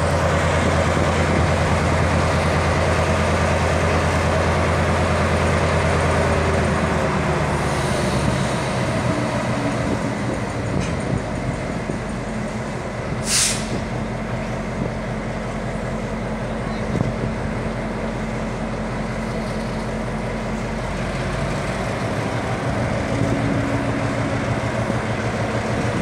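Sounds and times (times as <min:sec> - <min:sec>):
diesel locomotive engine running: 0:00.0 - 0:26.0
air hiss: 0:13.2 - 0:13.9.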